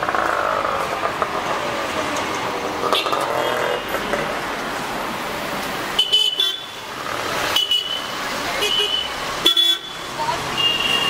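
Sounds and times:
road traffic passing: 0:00.0 - 0:11.0
vehicle horn toot: 0:07.5 - 0:10.0, 0:10.6 - 0:11.0.

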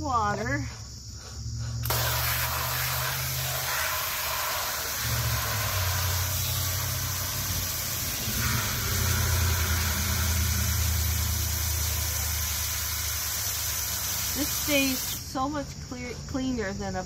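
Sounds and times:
water running into container: 0:01.9 - 0:15.2
low mechanical hum: 0:04.9 - 0:17.0.

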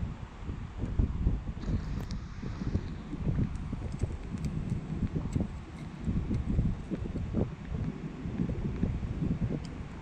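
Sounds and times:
wind buffeting microphone: 0:00.0 - 0:10.0
faint ticks: 0:01.6 - 0:08.9, 0:09.6 - 0:10.0.

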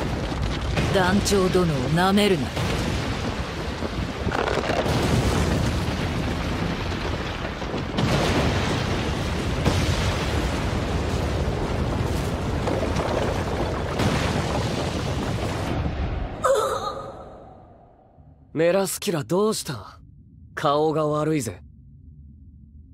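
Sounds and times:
explosion blast: 0:02.4 - 0:18.0.

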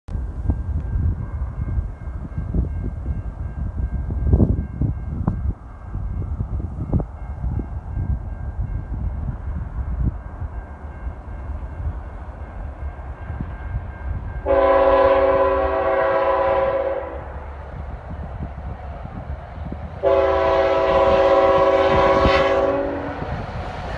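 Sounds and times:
low gusty rumble: 0:00.1 - 0:23.9
locomotive air horn blast: 0:14.4 - 0:17.4, 0:20.0 - 0:23.4.

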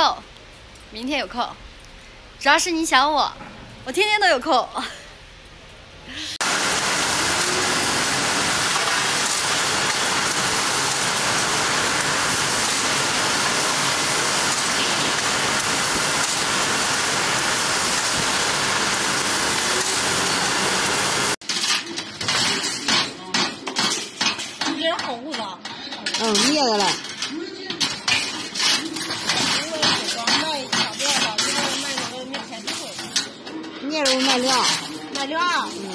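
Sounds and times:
conveyor machinery hiss: 0:06.1 - 0:21.4.

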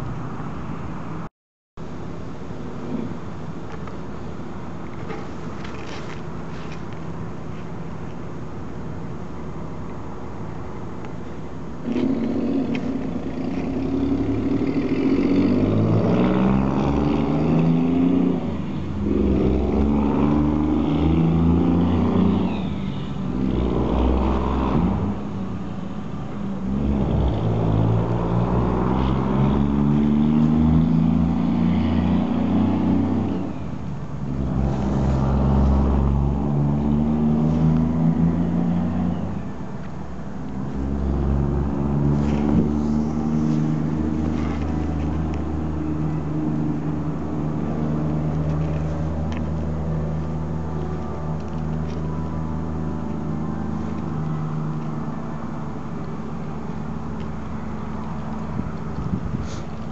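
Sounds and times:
truck accelerating: 0:10.4 - 0:25.7, 0:26.4 - 0:59.9
cars accelerating: 0:11.8 - 0:25.6, 0:26.5 - 0:39.5, 0:40.3 - 0:59.9.

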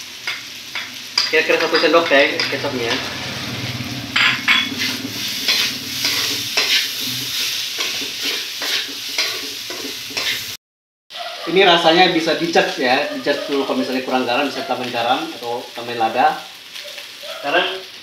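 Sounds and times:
rice sizzling in a wok: 0:00.0 - 0:18.0
spatula scraping a wok: 0:02.0 - 0:10.6.

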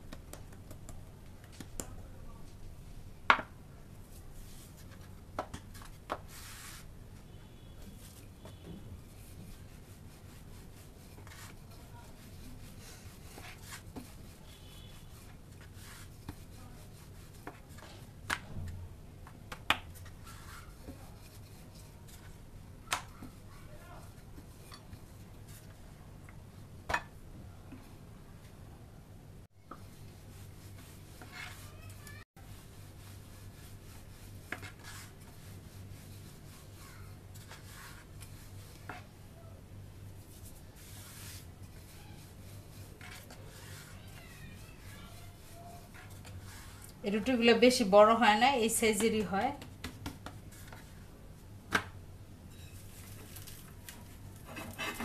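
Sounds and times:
rolling pin rolling dough: 0:07.9 - 0:25.8, 0:29.7 - 0:39.1, 0:40.2 - 0:47.6.

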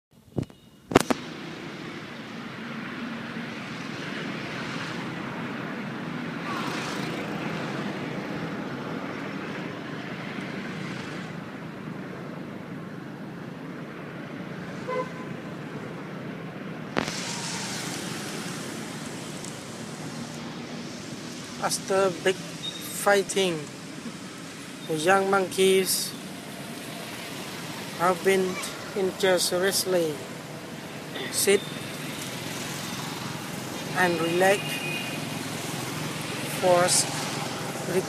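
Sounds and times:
outdoor hiss and hum: 0:15.4 - 0:38.0.

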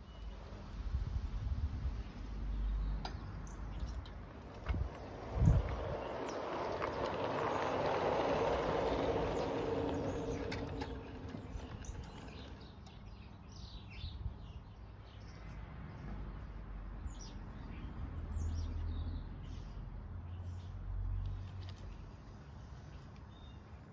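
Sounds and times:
small birds chirping: 0:01.9 - 0:23.9
model train humming and rolling: 0:04.6 - 0:13.1.

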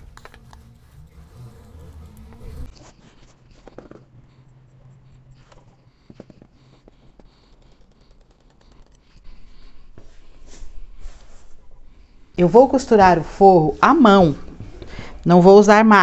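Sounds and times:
scissors cutting cloth: 0:00.0 - 0:02.7.

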